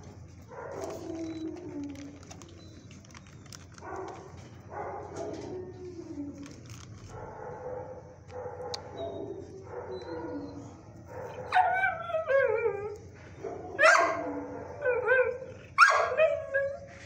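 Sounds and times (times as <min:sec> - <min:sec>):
dog whining: 0:00.7 - 0:02.7, 0:08.9 - 0:13.0, 0:13.8 - 0:17.0
dog howling: 0:08.9 - 0:13.0, 0:13.6 - 0:16.9.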